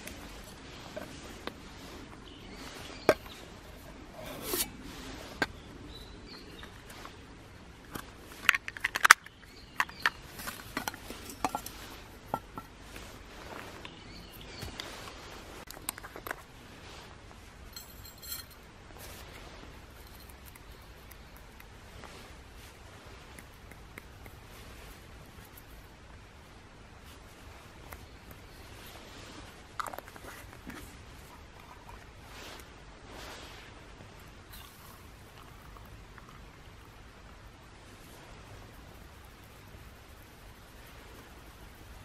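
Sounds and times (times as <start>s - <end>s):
metal mugs clinking: 17.7s - 18.7s.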